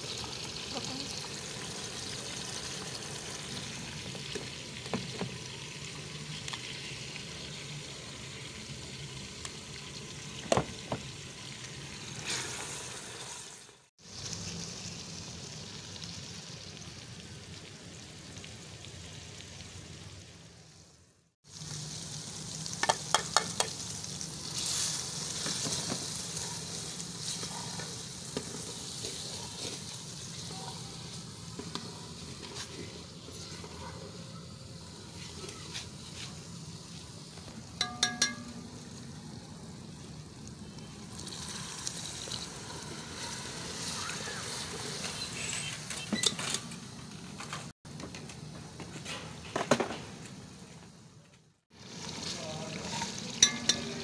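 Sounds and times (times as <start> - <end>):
vegetables sizzling in hot oil: 0.0 - 46.0, 51.7 - 54.0
spoon clinking against metal pot: 37.8 - 38.7, 53.4 - 54.0.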